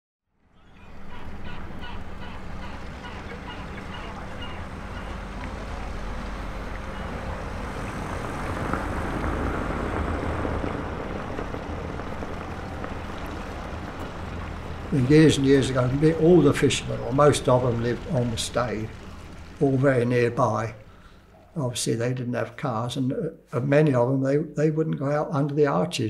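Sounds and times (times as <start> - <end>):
boat engine droning: 0.3 - 22.7
wind noise: 3.6 - 20.9.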